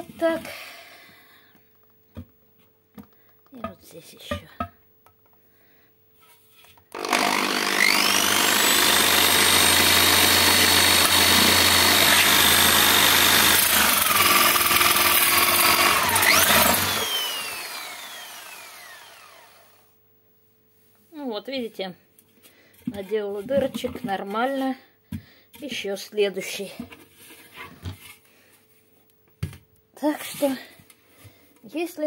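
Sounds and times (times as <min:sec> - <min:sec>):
electric drill boring plastic: 0:06.9 - 0:20.0.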